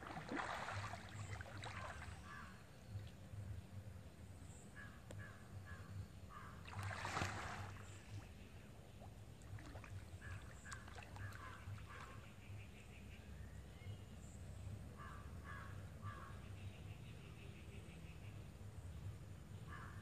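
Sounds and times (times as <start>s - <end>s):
water splashing and sloshing: 0.0s - 3.3s, 6.5s - 12.6s.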